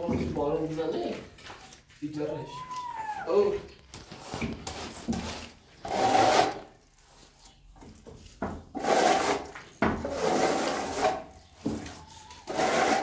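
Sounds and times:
trowel scraping wet plaster: 4.2 - 7.4, 8.7 - 11.5, 12.4 - 13.0.

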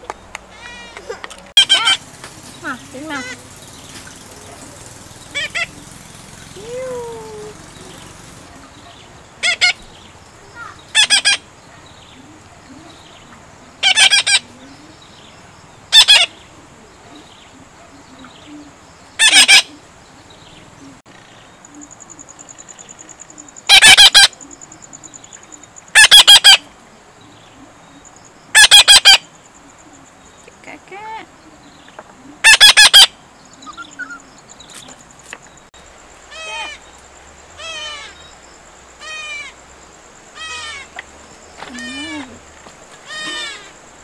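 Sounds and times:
parakeet chicks squawking: 0.5 - 11.5, 13.8 - 14.6, 15.9 - 16.4, 19.2 - 19.8, 23.7 - 24.4, 26.0 - 26.6, 28.6 - 29.3, 32.4 - 33.1, 36.3 - 36.8, 37.6 - 38.2, 39.0 - 39.6, 40.4 - 42.4, 43.0 - 43.8.

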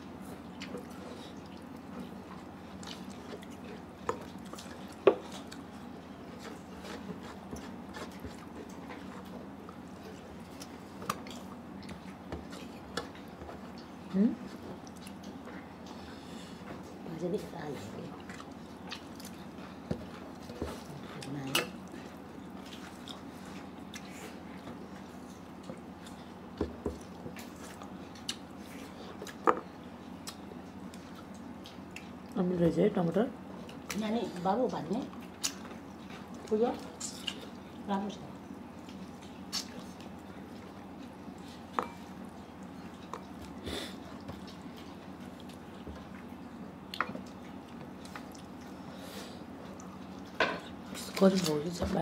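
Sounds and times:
chewing: 0.2 - 17.0, 17.8 - 32.4, 35.0 - 37.9, 38.5 - 51.5
eating noises: 38.6 - 51.2.

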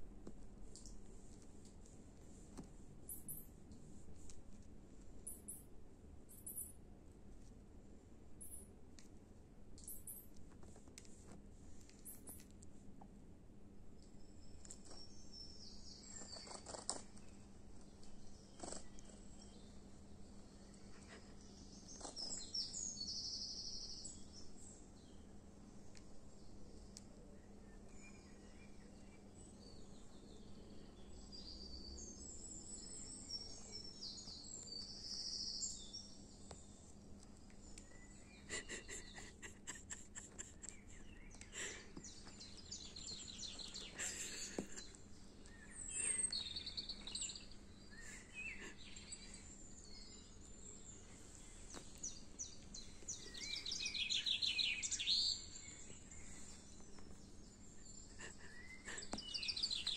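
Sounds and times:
faint steady hum: 0.0 - 59.9
birdsong through phone speaker: 38.0 - 50.4, 58.3 - 59.9.

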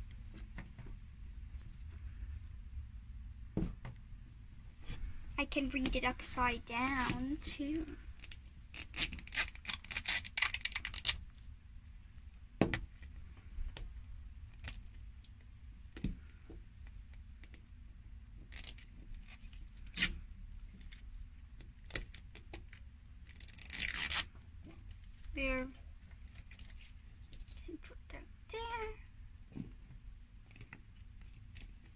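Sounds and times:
fingernails scratching plastic wrap: 6.9 - 11.2, 18.5 - 20.2, 21.9 - 24.3.

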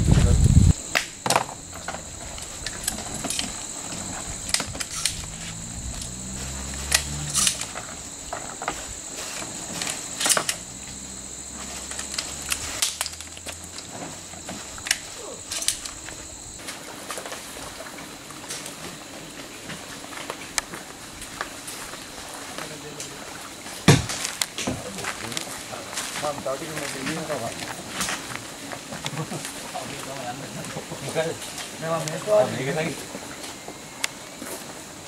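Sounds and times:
low hum: 0.0 - 14.8
high-pitched insect drone: 0.0 - 16.8.

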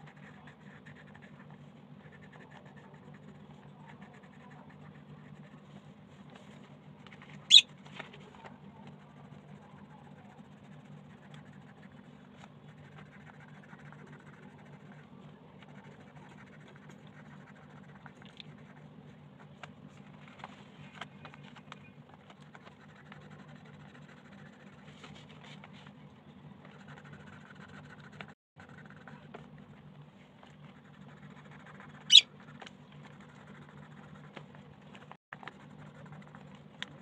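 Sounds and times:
pencil scratching on paper: 0.0 - 5.7, 8.7 - 18.8, 22.4 - 25.8, 26.6 - 29.3, 30.4 - 37.0.

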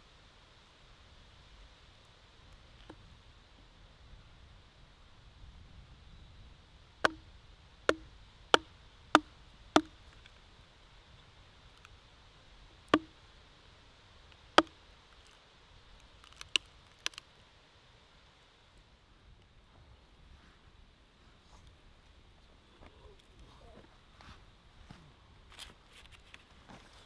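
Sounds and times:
hatchet chopping wood: 7.0 - 7.3, 7.9 - 10.0, 12.9 - 13.2, 14.6 - 14.8.

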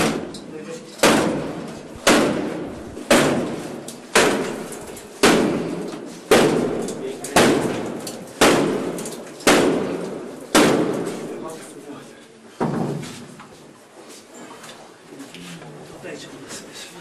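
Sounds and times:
wooden door being struck: 0.0 - 0.3, 1.0 - 11.1.

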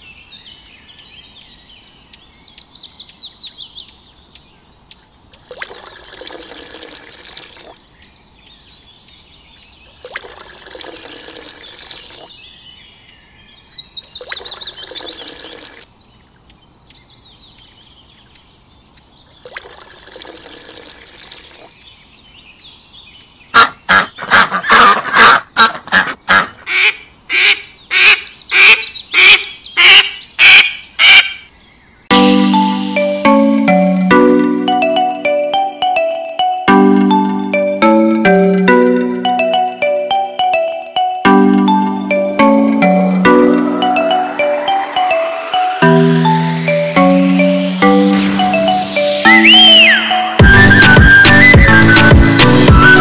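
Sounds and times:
water pouring into a pond: 5.4 - 7.9, 9.9 - 12.4, 14.1 - 15.9, 19.4 - 21.7
bird chirps and trills: 7.6 - 20.6, 26.9 - 53.0
rapid duck quacking: 23.6 - 31.4.

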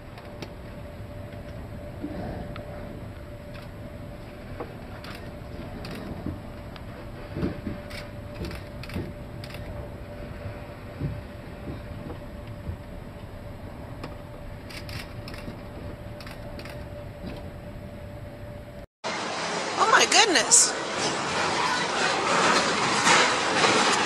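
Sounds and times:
ship creaking and knocking: 0.0 - 18.0
faint hum: 0.0 - 18.9
steady low rumble: 0.0 - 19.7.

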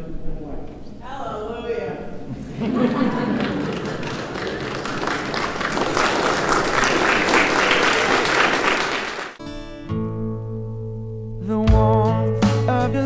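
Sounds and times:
crowd applauding: 2.4 - 9.4
music: 9.4 - 13.0.

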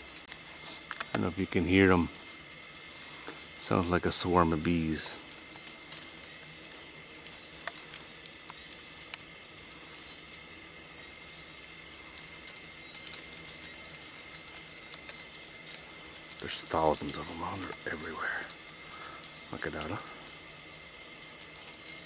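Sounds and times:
beetles buzzing: 0.0 - 22.0
high hiss: 0.0 - 22.0.

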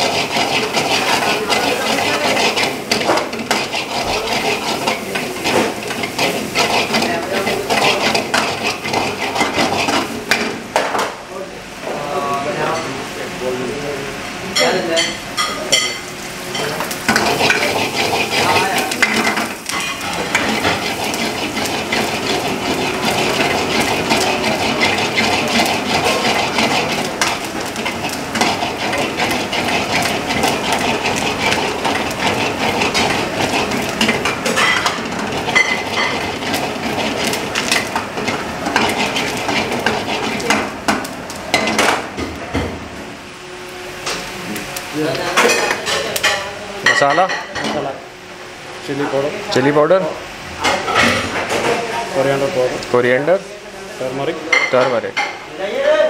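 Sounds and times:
metal ladle scraping pan: 0.0 - 10.6, 15.4 - 40.8
vegetables sizzling in oil: 0.0 - 56.0.

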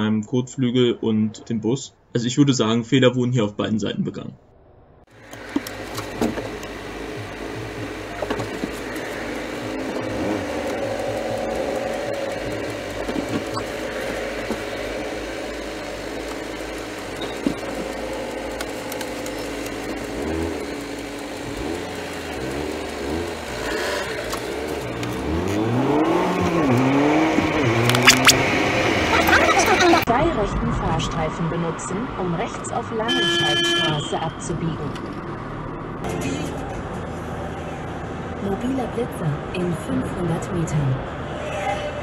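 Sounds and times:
car engine accelerating: 4.6 - 32.8
road noise inside car: 5.0 - 42.0.

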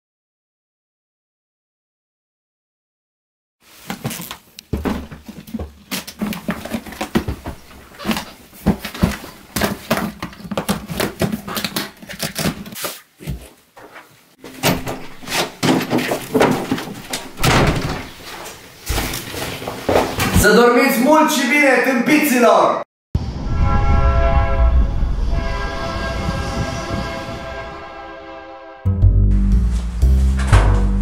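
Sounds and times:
suitcase knocks and rustling: 3.9 - 11.5
door opening: 14.4 - 20.5, 29.7 - 31.0.

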